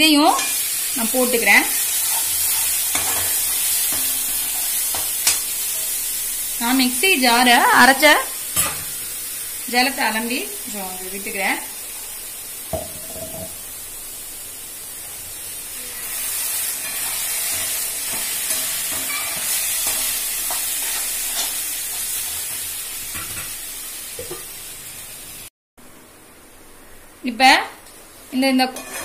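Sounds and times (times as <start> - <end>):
frying sizzle: 0.0 - 29.0
spatula scraping a pan: 1.9 - 6.0, 16.0 - 22.0, 28.7 - 29.0.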